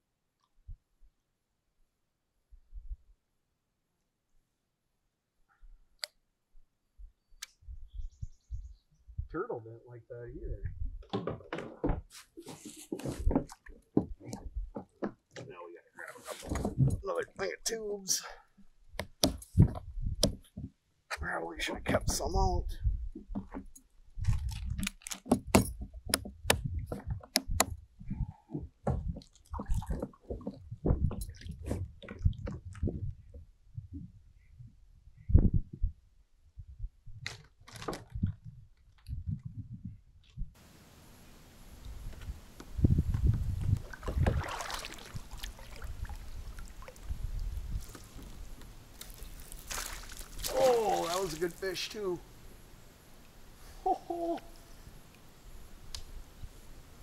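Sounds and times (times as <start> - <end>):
knocks and bumps on a kayak: 12.8 - 15.6, 19.0 - 20.8, 25.3 - 33.5, 43.2 - 44.9
water splashing: 29.1 - 30.4, 43.7 - 52.6.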